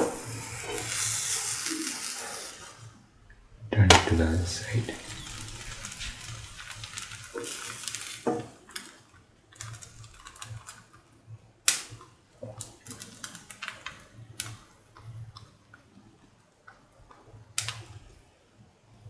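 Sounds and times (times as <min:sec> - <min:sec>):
batter sizzling in a pan: 0:00.0 - 0:03.1, 0:04.2 - 0:15.6
crackles and pops: 0:00.0 - 0:19.0.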